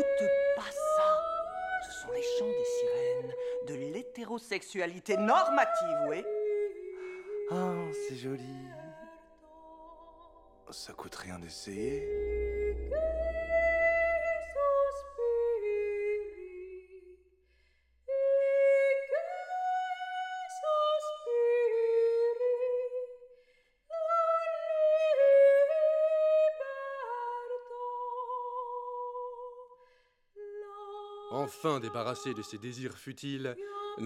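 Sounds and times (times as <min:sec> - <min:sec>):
woman singing wordless melody: 0:00.0 - 0:10.5, 0:12.1 - 0:17.2, 0:18.1 - 0:23.2, 0:23.9 - 0:29.7, 0:30.4 - 0:32.1, 0:33.6 - 0:34.0.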